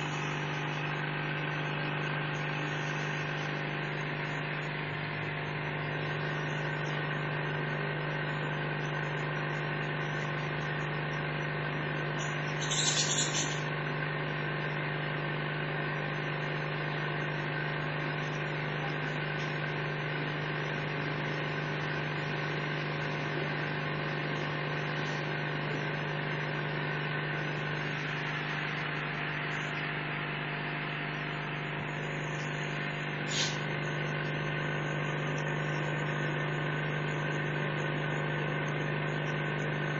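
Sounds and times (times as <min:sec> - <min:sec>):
steady machine hum: 0:00.0 - 0:39.9
brief hisses: 0:33.3 - 0:33.6.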